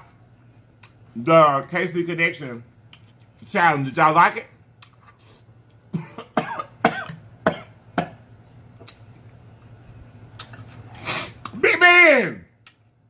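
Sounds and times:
man coughing: 0:05.9 - 0:08.2.

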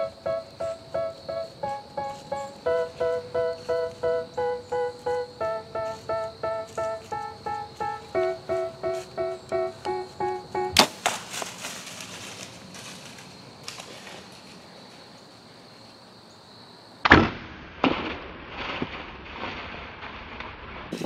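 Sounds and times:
rustling in dry leaves: 0:00.0 - 0:15.9
bow shot crack: 0:10.8 - 0:12.1.

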